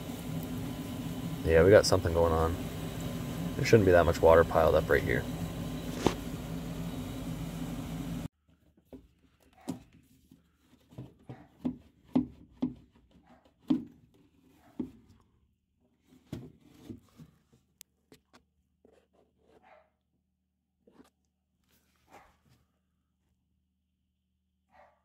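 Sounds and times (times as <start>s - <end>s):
furnace vent motor running: 0.0s - 8.3s.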